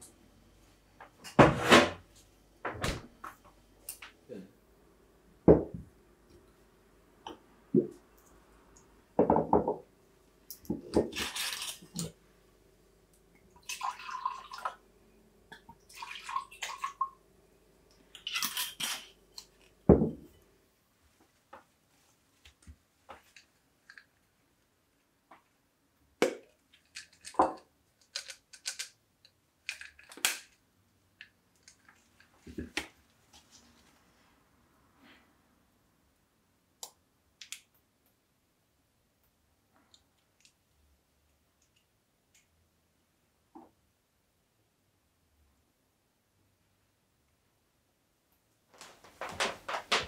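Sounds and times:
thump on wooden counter: 5.5s - 5.8s, 19.9s - 20.2s
wine pouring into glass: 13.6s - 14.8s, 15.9s - 17.0s.

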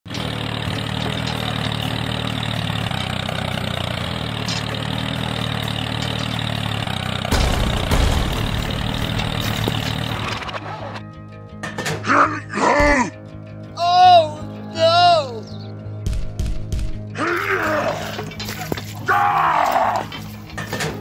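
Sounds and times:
engine idling: 0.1s - 11.7s.

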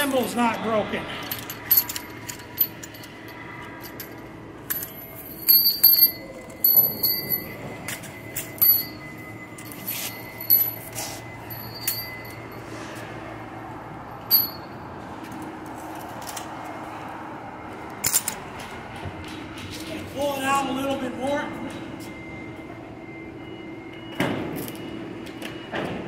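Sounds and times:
metal carabiners clinking: 1.2s - 12.9s, 14.2s - 16.5s, 18.0s - 18.4s.

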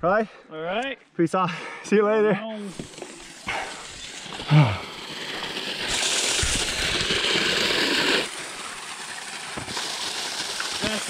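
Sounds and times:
water gushing from a pipe: 2.6s - 11.0s.

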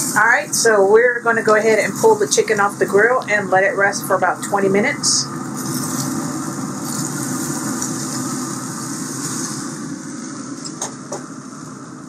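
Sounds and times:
grill fan whirring: 0.0s - 12.0s.

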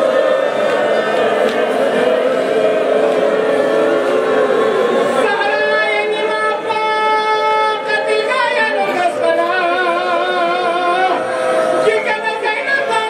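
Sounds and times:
man chanting a lament: 5.2s - 13.0s.

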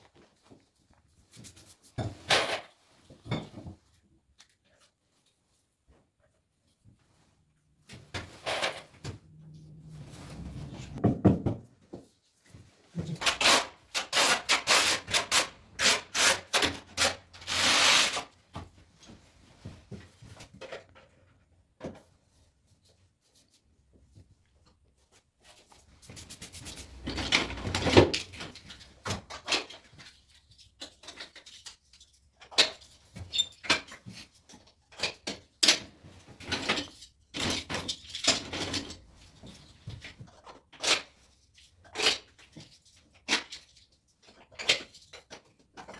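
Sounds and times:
tiles scraping and rubbing: 8.2s - 11.1s, 12.9s - 18.4s, 25.4s - 35.2s.

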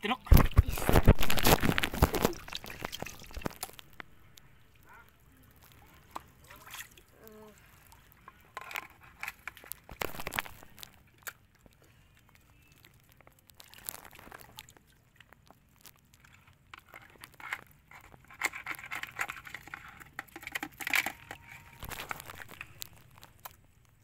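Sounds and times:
crabs scrabbling in plastic bucket: 0.2s - 24.0s
light water splashes: 1.1s - 8.6s, 9.4s - 18.1s.

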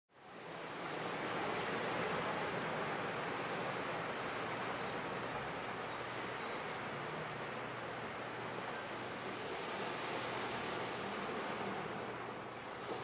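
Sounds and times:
ocean surf on sandy beach: 0.1s - 13.0s.

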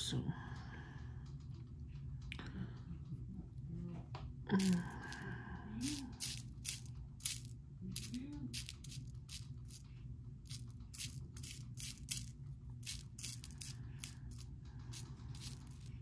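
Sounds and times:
low steady hum: 0.0s - 16.0s
beads clicking: 4.6s - 16.0s.

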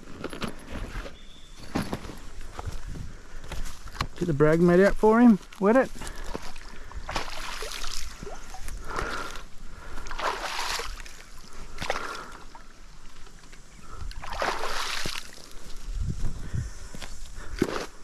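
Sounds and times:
water splashing on a mat: 7.1s - 8.4s, 10.1s - 11.2s, 14.2s - 15.3s.

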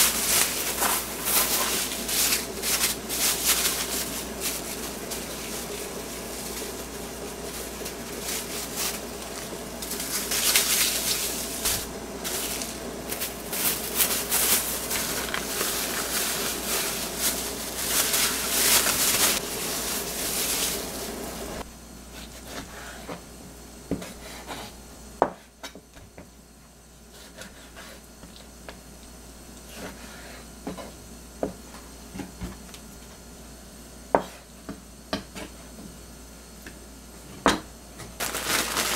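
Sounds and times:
cling film crinkling: 0.0s - 21.4s, 38.2s - 38.9s.

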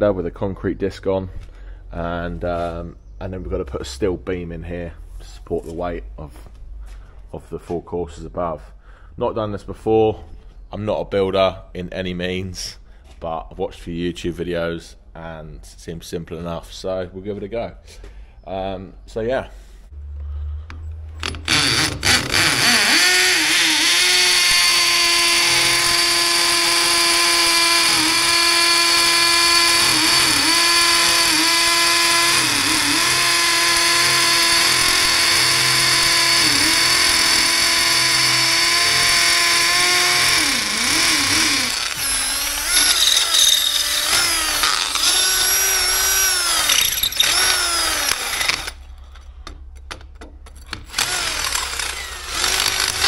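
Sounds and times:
angle grinder cutting concrete: 21.5s - 48.8s, 51.0s - 53.0s.

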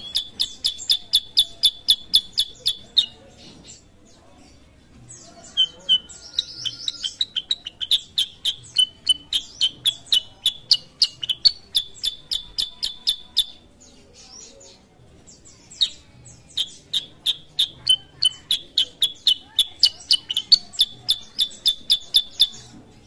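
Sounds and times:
bird chirping sharply: 0.0s - 3.8s, 5.2s - 14.5s.

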